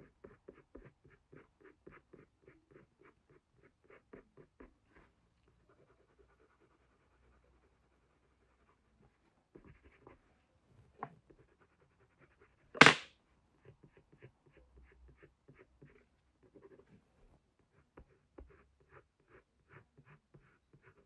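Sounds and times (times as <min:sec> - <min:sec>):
pencil strokes on paper: 0:00.0 - 0:12.8, 0:13.6 - 0:21.0.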